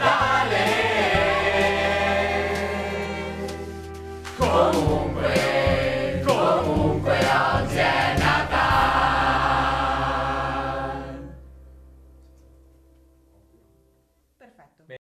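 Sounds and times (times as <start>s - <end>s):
mixed choir singing: 0.0s - 11.4s
backing music: 0.0s - 13.8s.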